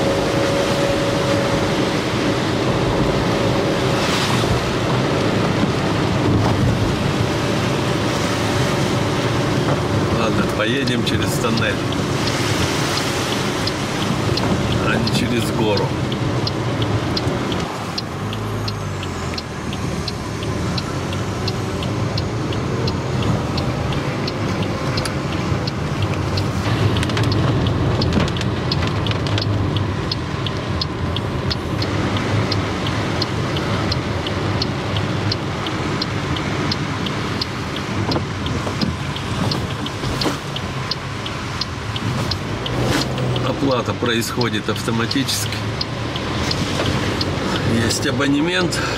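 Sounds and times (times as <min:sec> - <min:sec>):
engine and tyre rumble: 0:00.0 - 0:48.9
light even ticking: 0:04.8 - 0:48.9
tyres hissing on wet road: 0:45.2 - 0:48.9.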